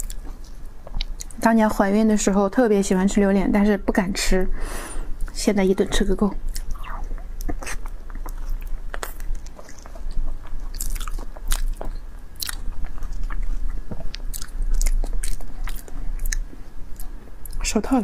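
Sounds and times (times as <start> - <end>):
mouth chewing and lip smacks: 6.5 - 17.6.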